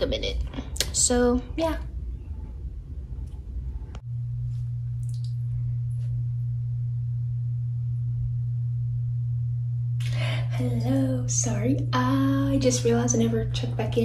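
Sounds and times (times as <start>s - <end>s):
low electrical hum: 0.0s - 14.0s.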